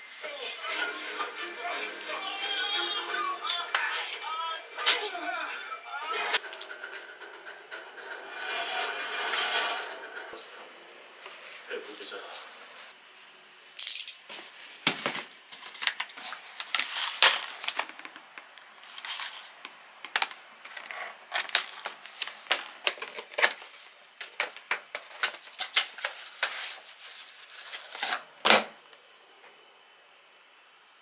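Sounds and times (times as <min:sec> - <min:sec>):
cardboard crackling and rustling: 0:14.8 - 0:28.4.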